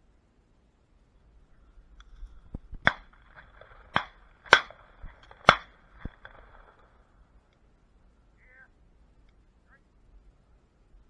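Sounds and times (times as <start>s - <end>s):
shotgun shots: 2.8s - 6.9s.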